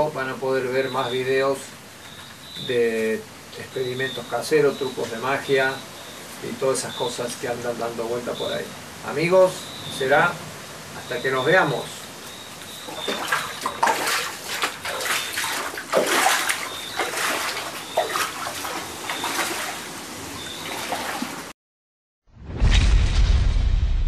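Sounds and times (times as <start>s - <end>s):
faint high chirp: 2.0s - 6.2s, 11.0s - 13.8s, 19.1s - 19.4s
floodwater splashing and gurgling: 12.3s - 21.5s
loud boom: 22.3s - 24.0s.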